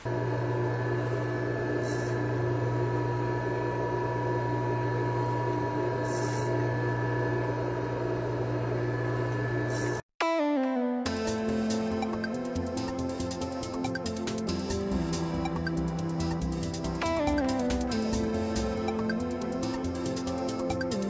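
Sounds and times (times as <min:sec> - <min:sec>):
grinder humming and whining: 0:00.0 - 0:10.0, 0:11.5 - 0:21.0
electronic music: 0:10.2 - 0:21.0.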